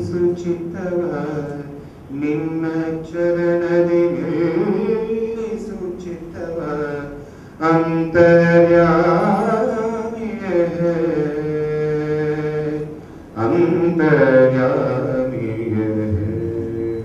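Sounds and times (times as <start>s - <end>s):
man singing long note: 0.0s - 17.0s
singer breath: 1.8s - 2.1s, 7.2s - 7.6s, 13.0s - 13.4s.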